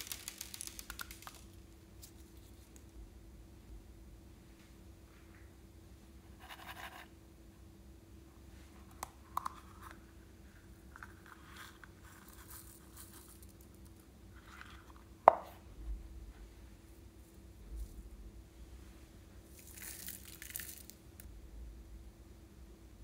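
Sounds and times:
coin purse rustling: 0:19.6 - 0:21.0.

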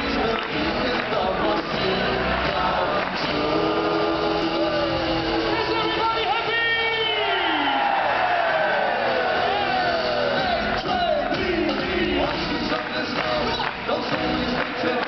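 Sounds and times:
man singing: 0:00.0 - 0:06.4, 0:09.4 - 0:15.0
drums: 0:00.0 - 0:15.0.

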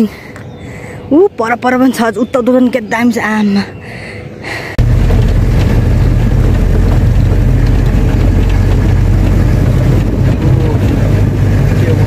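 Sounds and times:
vehicle rumble from inside cabin: 0:04.7 - 0:12.0.

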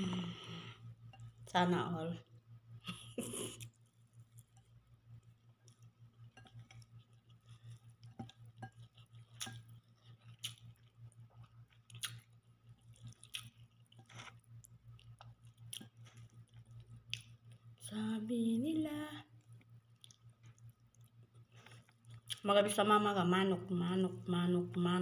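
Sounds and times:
steady low hum: 0:00.0 - 0:25.0
chewing and eating: 0:03.4 - 0:17.9, 0:19.2 - 0:22.7
fingers tearing food clicks: 0:11.7 - 0:14.0.

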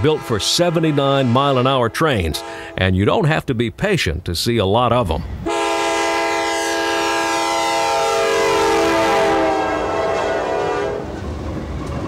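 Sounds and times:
passing train rumble and clatter: 0:00.0 - 0:02.8, 0:05.1 - 0:12.0
locomotive air horn: 0:00.0 - 0:02.9, 0:05.4 - 0:11.2.

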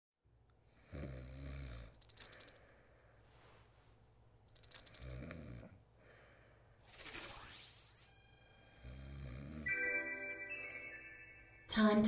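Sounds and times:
man snoring: 0:00.7 - 0:02.0, 0:05.0 - 0:05.8, 0:08.7 - 0:09.7.

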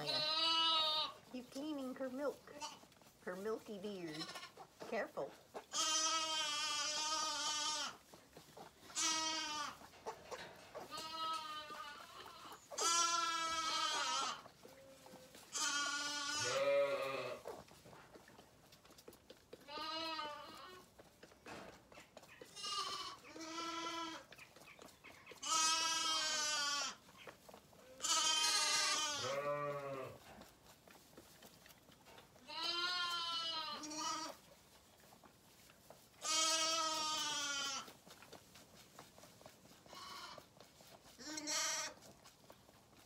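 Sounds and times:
lambs bleating: 0:00.0 - 0:01.2, 0:02.5 - 0:02.9, 0:04.1 - 0:04.6, 0:05.6 - 0:08.0, 0:08.8 - 0:09.9, 0:10.8 - 0:17.5, 0:19.6 - 0:20.8, 0:22.4 - 0:24.4, 0:25.4 - 0:27.0, 0:27.8 - 0:30.2, 0:32.4 - 0:34.4, 0:36.2 - 0:37.9, 0:39.8 - 0:40.5, 0:41.2 - 0:42.0.

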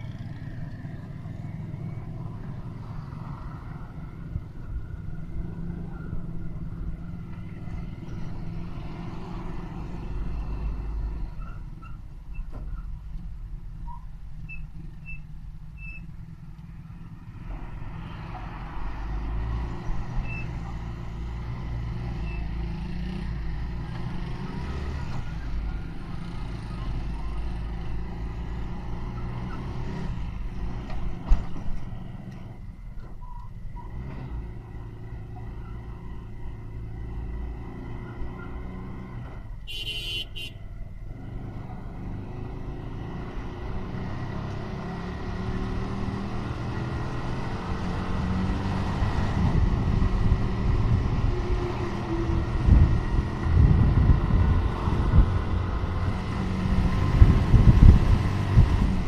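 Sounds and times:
road noise: 0:00.0 - 0:59.0
wind buffeting microphone: 0:49.0 - 0:59.0.

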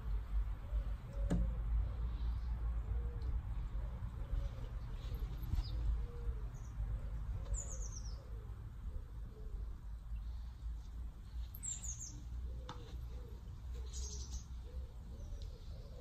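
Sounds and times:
pigeon cooing: 0:00.6 - 0:09.8, 0:12.3 - 0:16.0
small bird chirping: 0:11.3 - 0:12.3.

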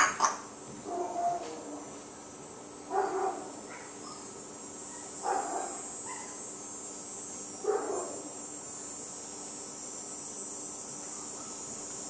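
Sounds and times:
steady high-pitched hiss: 0:00.0 - 0:12.0
dog barking: 0:02.9 - 0:04.2, 0:05.2 - 0:06.4, 0:07.7 - 0:08.2.

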